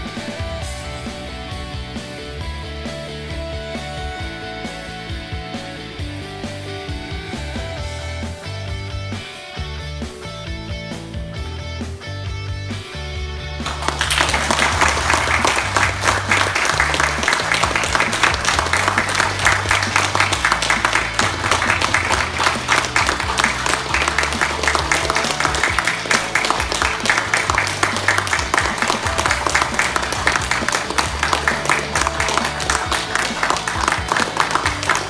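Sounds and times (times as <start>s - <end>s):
background music with bass line: 0.0s - 35.0s
people applauding: 13.6s - 35.0s.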